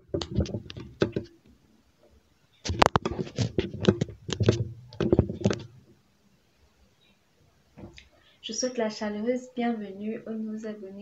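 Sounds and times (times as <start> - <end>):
woman talking: 8.4 - 11.0.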